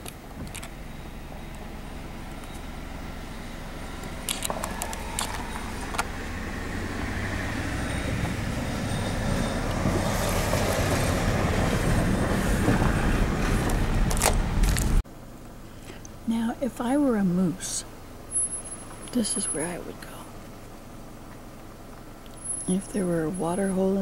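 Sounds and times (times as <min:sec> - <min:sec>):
gravel crunching under tyres: 0:00.0 - 0:15.0
car engine and tyre rumble: 0:00.0 - 0:24.0.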